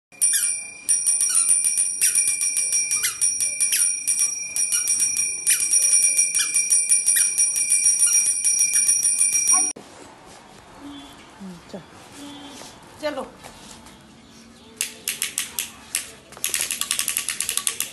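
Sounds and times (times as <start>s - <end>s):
rapid bell ringing: 0.2s - 9.8s.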